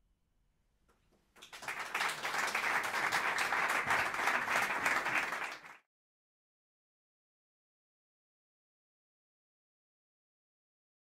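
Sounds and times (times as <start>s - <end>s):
audience applauding: 1.4s - 5.9s.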